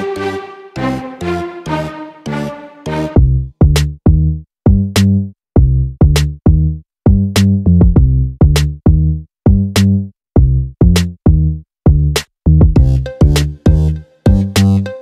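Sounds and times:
electronic drum machine beat: 12.7 - 15.0.

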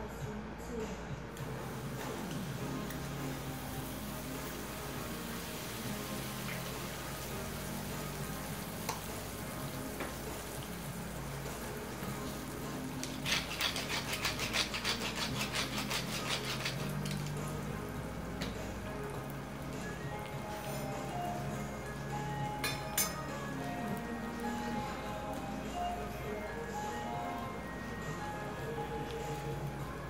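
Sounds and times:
toast sizzling on a griddle: 1.5 - 21.5.

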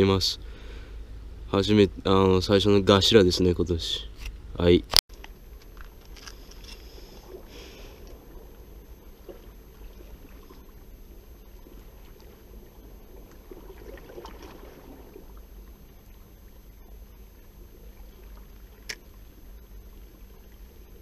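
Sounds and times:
steady low rumble: 0.0 - 21.0
seawater sloshing and gurgling: 6.5 - 21.0.

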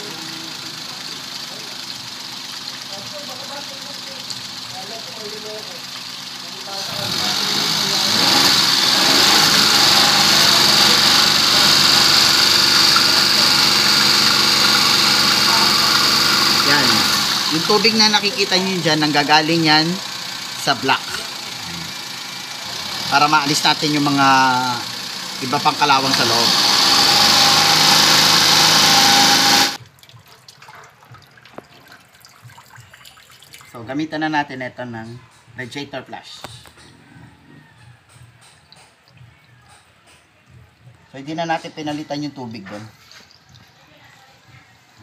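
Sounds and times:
car engine idling: 0.0 - 29.8
water gushing out: 7.1 - 19.6
faint water drips: 29.8 - 33.8, 37.7 - 41.2, 42.6 - 44.9
water splashing: 29.8 - 33.8.

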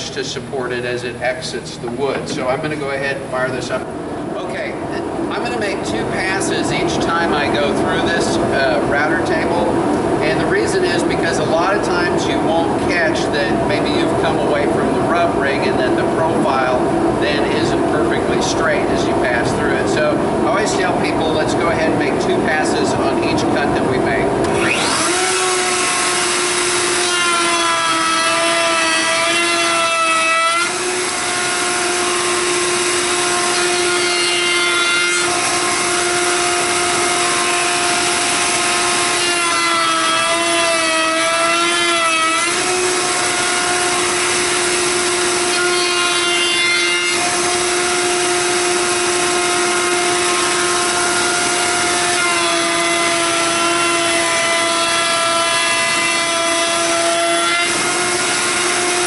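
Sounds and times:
router bit cutting wood: 24.4 - 59.0
router whining: 24.4 - 59.0.

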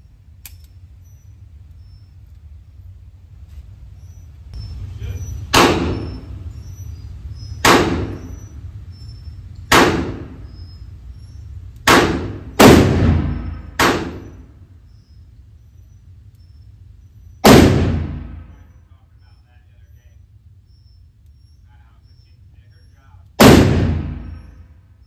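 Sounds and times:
revolver gunshots: 5.5 - 6.6, 7.6 - 8.5, 9.7 - 10.6, 11.8 - 14.6, 17.4 - 18.7, 23.4 - 24.6.

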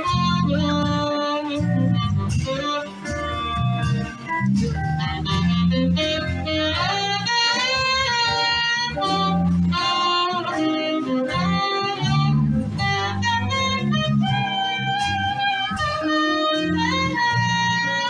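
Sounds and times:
saxophone-led party band: 0.0 - 18.0.

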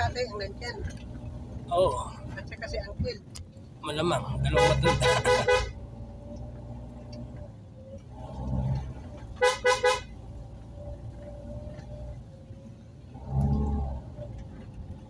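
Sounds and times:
car engine humming: 0.0 - 15.0
car horn tooting: 4.4 - 5.8, 9.4 - 10.2.

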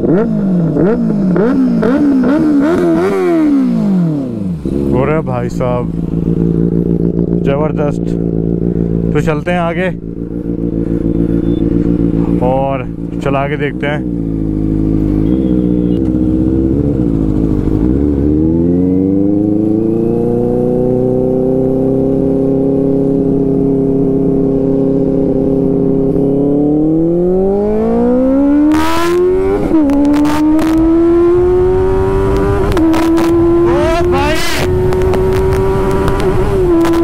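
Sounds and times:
motorcycle engine accelerating: 0.0 - 37.0
exhaust cracks: 29.6 - 30.9, 32.2 - 37.0.

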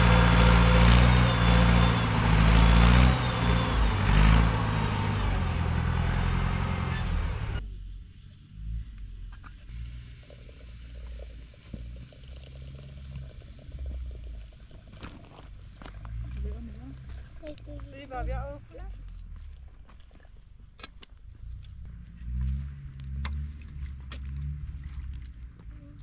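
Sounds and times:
motor engine humming: 0.0 - 7.7.

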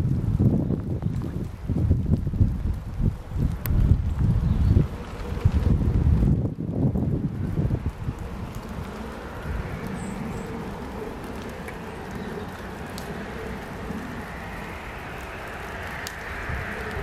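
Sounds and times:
outdoor rumble and hiss: 0.0 - 17.0
faint ticks: 7.7 - 17.0.

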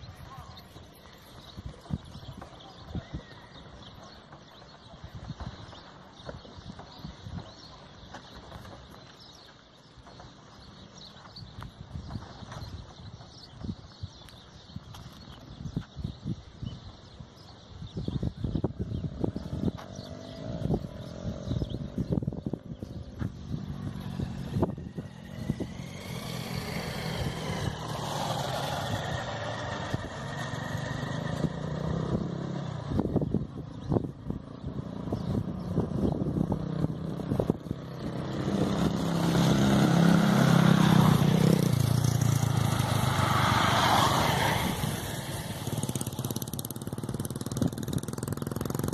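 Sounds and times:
traffic passing: 18.5 - 48.9
engine passing close: 18.8 - 48.9.

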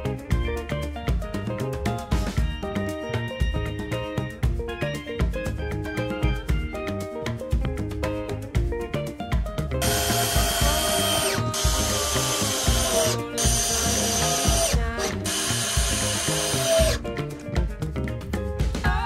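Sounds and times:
music with steady beat: 0.0 - 19.0
cordless drill boring into wood: 9.8 - 17.0.

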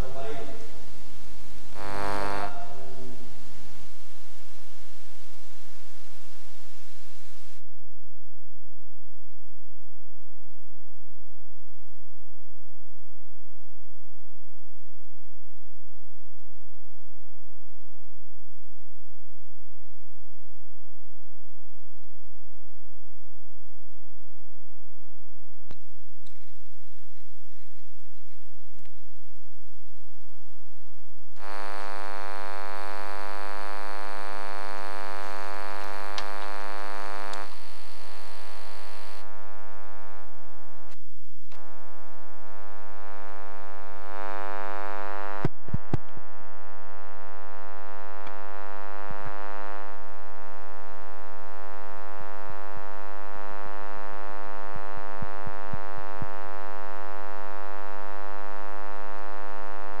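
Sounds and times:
electrical buzz: 0.0 - 7.7, 30.7 - 60.0.

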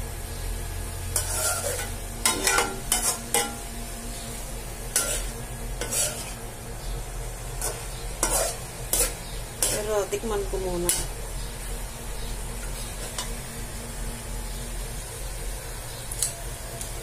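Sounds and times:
food sizzling: 0.0 - 17.0
spatula scraping wok: 1.0 - 3.6, 4.3 - 11.8, 12.5 - 13.4.

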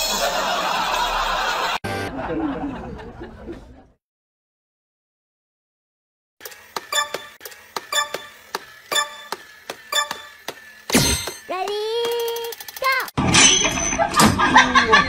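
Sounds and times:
clock ticking: 6.8 - 10.4.

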